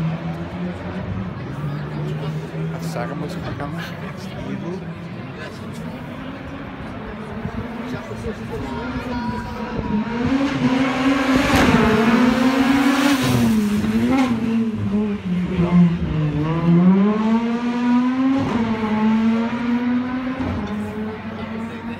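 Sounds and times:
rally car racing past: 0:08.5 - 0:21.8.

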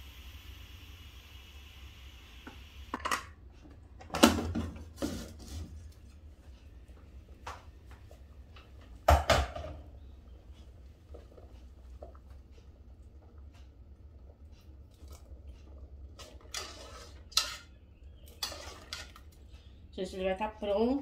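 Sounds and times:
steam hissing from valve: 0:00.0 - 0:02.9.

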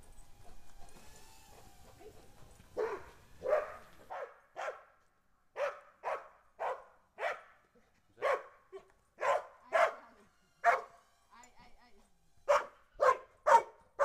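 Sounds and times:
dog barking: 0:02.8 - 0:07.6, 0:08.2 - 0:11.0, 0:12.5 - 0:14.0.

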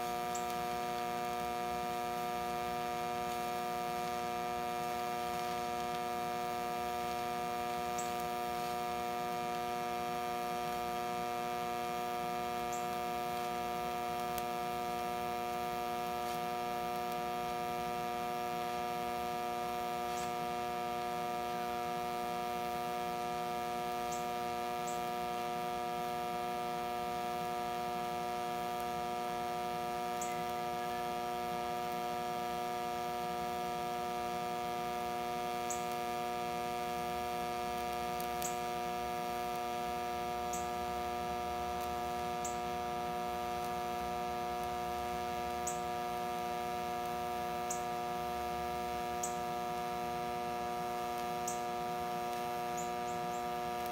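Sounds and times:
welder humming: 0:00.0 - 0:53.9
faint ticks: 0:00.3 - 0:00.6, 0:51.1 - 0:53.9.

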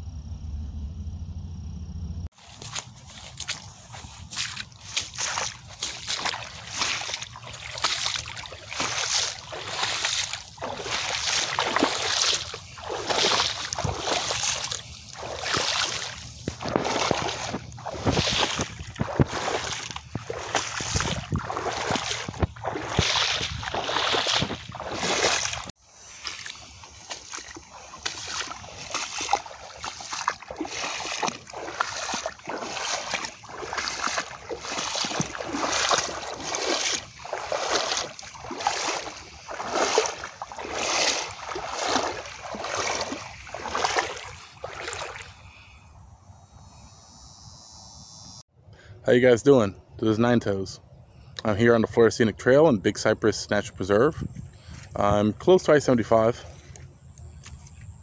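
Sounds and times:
boots splashing through water: 0:02.3 - 0:45.7.

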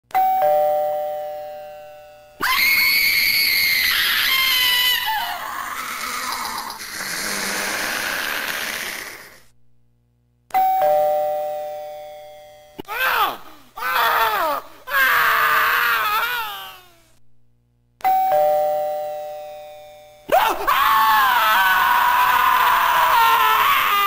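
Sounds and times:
shrill scream-like cry: 0:02.4 - 0:09.4, 0:12.9 - 0:17.0, 0:20.3 - 0:24.0
two-note ding-dong chime: 0:18.0 - 0:20.3.

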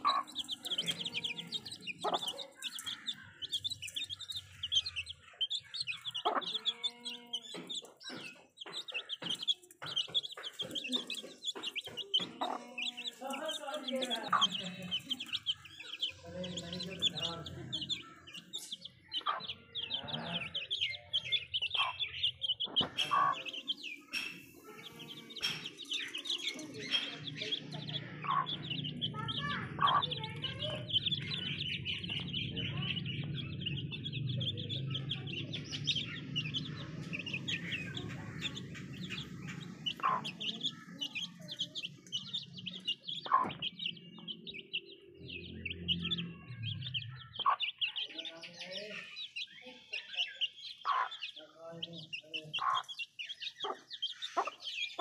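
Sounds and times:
hen clucking: 0:00.0 - 0:44.8, 0:45.6 - 0:51.5, 0:52.1 - 0:55.0
beaks pecking metal bowl: 0:00.0 - 0:55.0
chicks peeping and chirping: 0:00.0 - 0:55.0.

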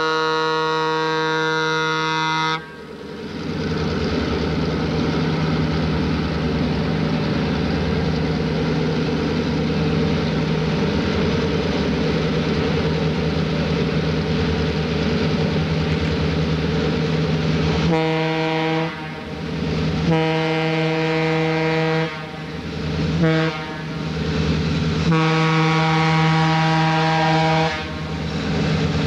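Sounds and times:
train air horn: 0:00.0 - 0:02.9, 0:17.8 - 0:19.4, 0:20.0 - 0:22.6, 0:23.2 - 0:24.1, 0:25.0 - 0:28.2
diesel train running: 0:00.0 - 0:29.0.

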